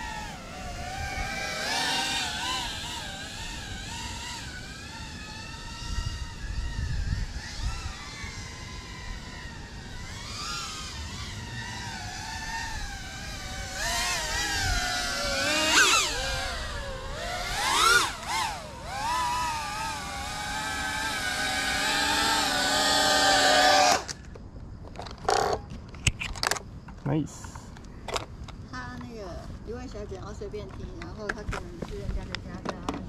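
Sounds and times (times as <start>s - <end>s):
drone motors whining: 0.0s - 24.4s.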